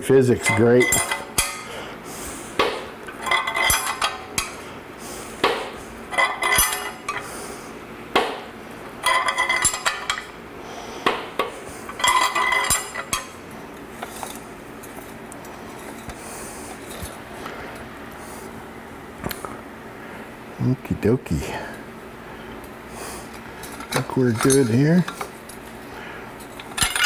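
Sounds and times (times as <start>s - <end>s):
metal clinking and clanking: 0.4s - 1.7s, 3.2s - 4.6s, 6.1s - 7.2s, 9.0s - 10.3s, 12.0s - 13.3s, 23.6s - 25.3s, 26.4s - 27.0s.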